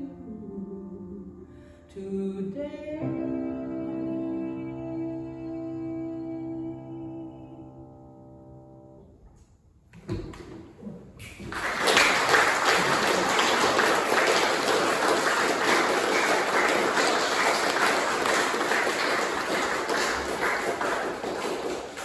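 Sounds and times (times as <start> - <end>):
audience applauding: 11.2 - 22.0.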